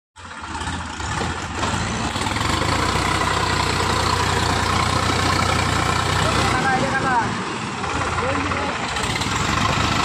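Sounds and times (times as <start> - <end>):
tractor diesel engine running: 0.2 - 10.0.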